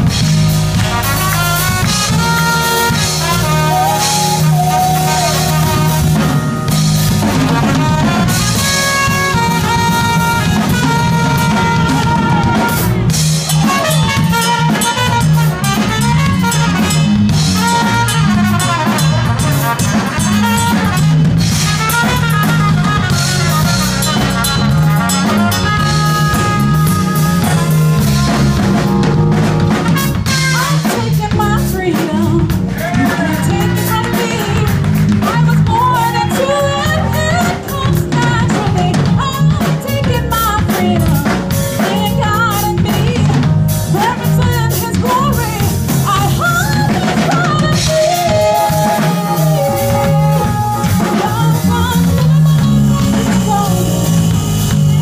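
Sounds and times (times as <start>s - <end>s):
trumpet lead line: 0.0s - 31.4s, 43.9s - 55.0s
live band playing: 0.0s - 55.0s.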